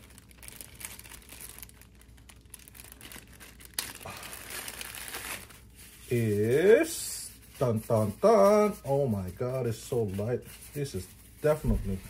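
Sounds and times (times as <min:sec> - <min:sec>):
plastic crackle: 0:00.0 - 0:06.6
plastic bag crinkling: 0:00.0 - 0:06.7.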